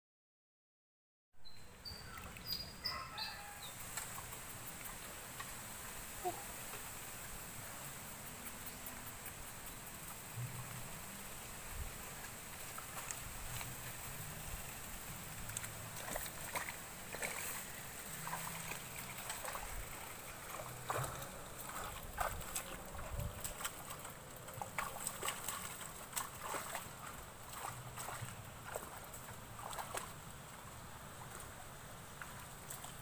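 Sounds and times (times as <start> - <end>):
feet splashing through water: 10.0 - 33.0.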